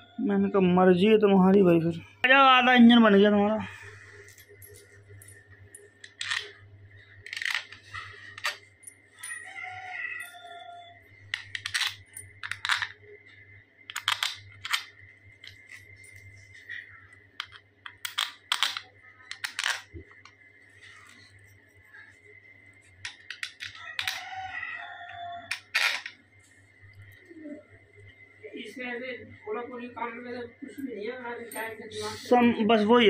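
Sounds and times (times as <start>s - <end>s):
steady low hum: 0.0s - 23.8s
metal parts clinking on engine: 11.3s - 13.0s.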